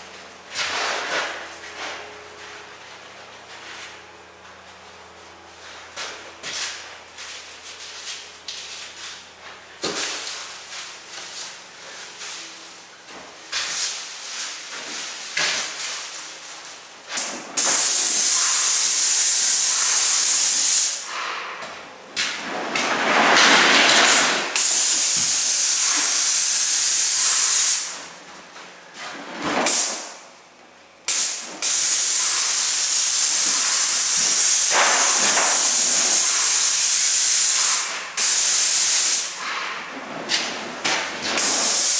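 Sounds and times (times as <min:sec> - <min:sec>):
paint spray gun hissing: 0:17.6 - 0:21.0, 0:24.6 - 0:27.9, 0:31.1 - 0:39.3, 0:41.4 - 0:41.9.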